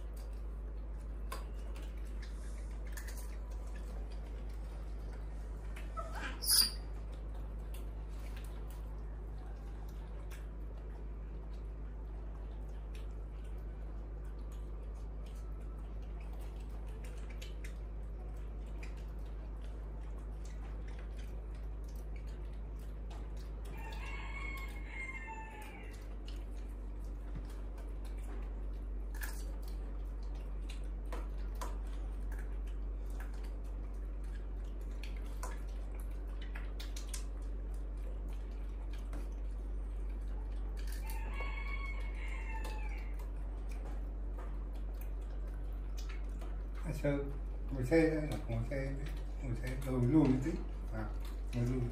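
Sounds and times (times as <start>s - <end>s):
steady low hum: 0.0s - 51.9s
rooster crowing: 23.7s - 26.1s, 41.0s - 43.2s.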